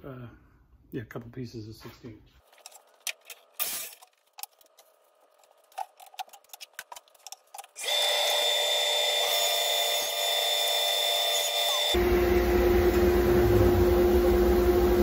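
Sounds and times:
table saw running: 7.8 - 15.0.

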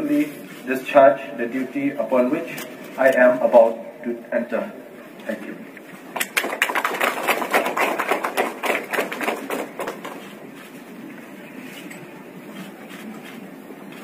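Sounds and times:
small audience clapping: 6.1 - 10.4.

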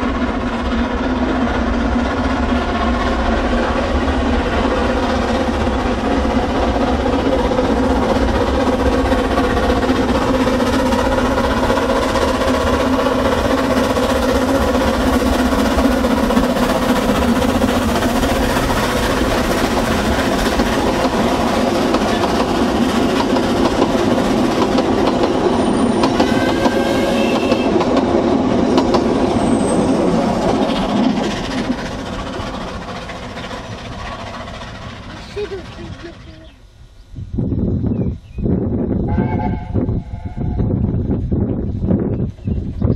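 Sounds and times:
coach wheels clattering on rails: 0.0 - 36.6
steam locomotive exhaust: 0.0 - 37.6, 38.5 - 42.9.

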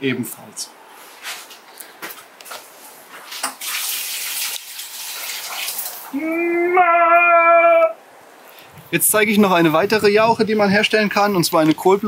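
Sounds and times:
liquid pouring onto soil: 3.6 - 6.1.

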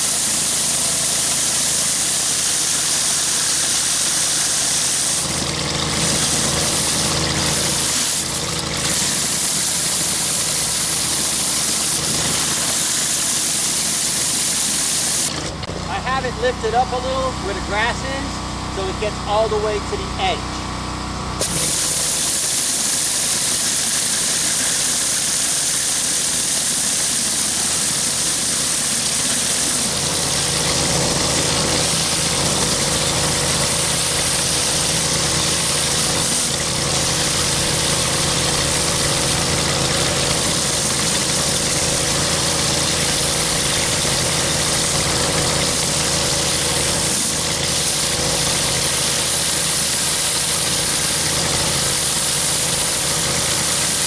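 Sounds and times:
pressure washer engine running: 0.0 - 54.0
water jets hissing: 21.4 - 54.0.

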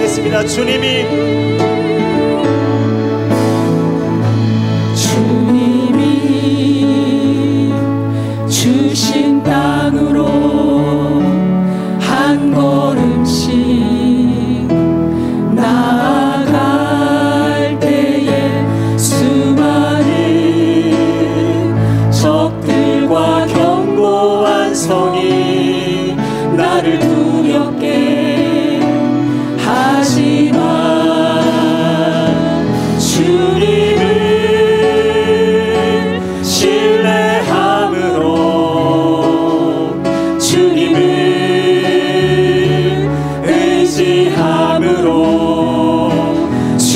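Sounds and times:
man and women singing praise song: 0.0 - 3.4, 12.0 - 14.7, 15.5 - 46.9
musical backing: 0.0 - 46.9.

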